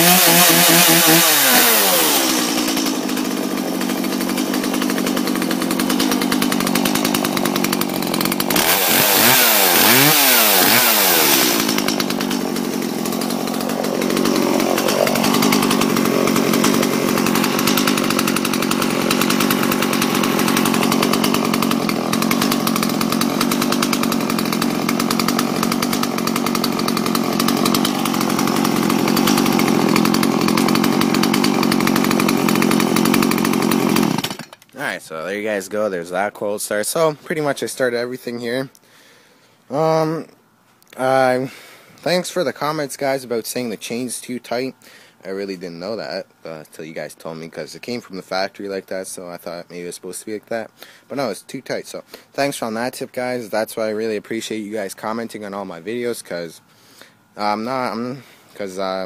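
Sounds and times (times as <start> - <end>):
chainsaw idling and revving: 0.0 - 34.7.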